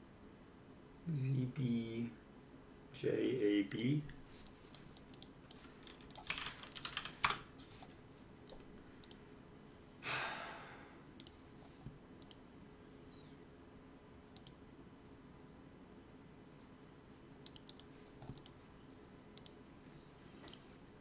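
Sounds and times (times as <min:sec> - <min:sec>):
mouse clicks: 0:03.7 - 0:06.2, 0:08.5 - 0:09.2, 0:12.2 - 0:12.4, 0:14.4 - 0:14.6, 0:17.4 - 0:18.6, 0:19.4 - 0:19.6, 0:20.4 - 0:20.6
keyboard typing: 0:03.7 - 0:07.5, 0:08.4 - 0:09.2, 0:12.2 - 0:12.4, 0:14.4 - 0:14.6, 0:17.4 - 0:18.6, 0:19.4 - 0:19.6
breathy exhale: 0:10.0 - 0:11.0.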